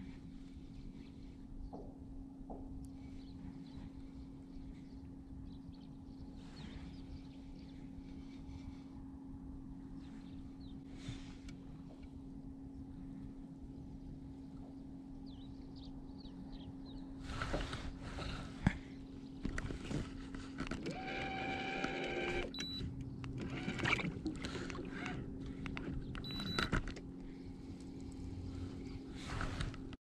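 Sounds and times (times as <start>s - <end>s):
low electric hum: 0.0s - 30.0s
fishing reel clicks and rustles: 19.4s - 28.2s.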